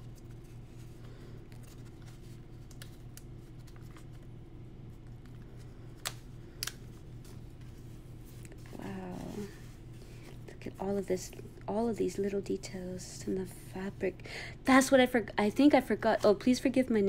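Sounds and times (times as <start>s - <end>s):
paper rustling: 0.1s - 4.2s.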